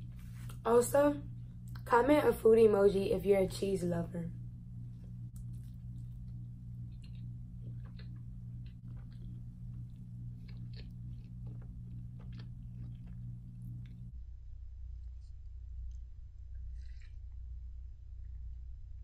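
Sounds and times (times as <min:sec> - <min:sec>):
steady low hum: 0:00.0 - 0:19.0
chewing food wet mouth clicks: 0:05.3 - 0:14.1, 0:16.6 - 0:17.1.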